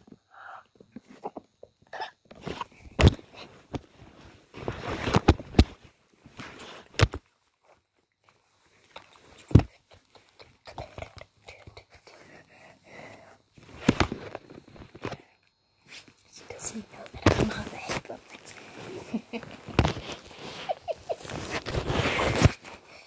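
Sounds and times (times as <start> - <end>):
rubbing against camera: 17.5 - 22.9.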